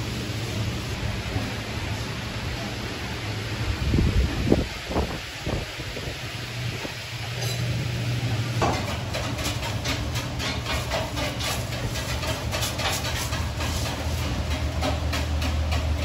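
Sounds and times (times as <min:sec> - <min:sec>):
utensils knocking cookware: 0:08.6 - 0:16.0.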